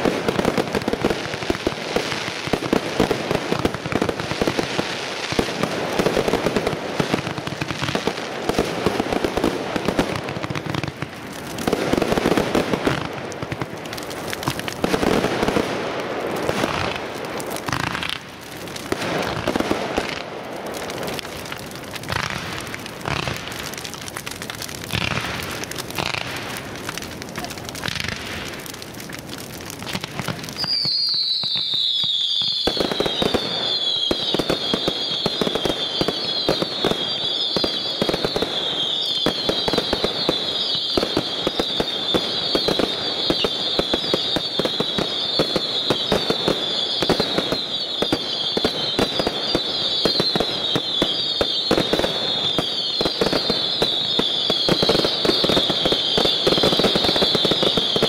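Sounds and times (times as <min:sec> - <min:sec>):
fireworks crackling and popping: 0:00.0 - 0:58.0
firework whistles: 0:30.5 - 0:58.0.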